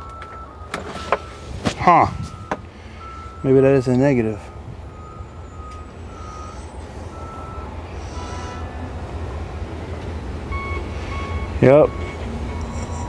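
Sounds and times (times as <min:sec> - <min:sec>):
steady low rumble: 0:01.3 - 0:03.5
short electronic beeps: 0:02.2 - 0:08.6, 0:10.5 - 0:13.0.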